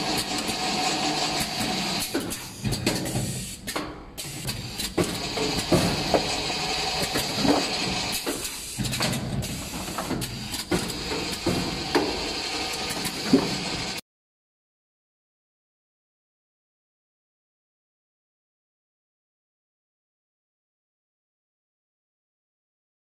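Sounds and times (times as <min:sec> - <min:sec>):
machine clicks and knocks: 0:00.0 - 0:14.0
machine humming and hissing: 0:00.0 - 0:14.0.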